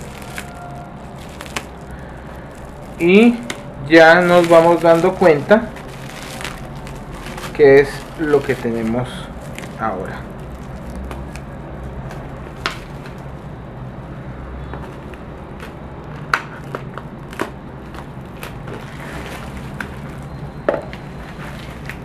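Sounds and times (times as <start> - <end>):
plastic wrapping crinkling: 0.0 - 13.5, 14.8 - 22.0
steady low hum: 0.0 - 22.0.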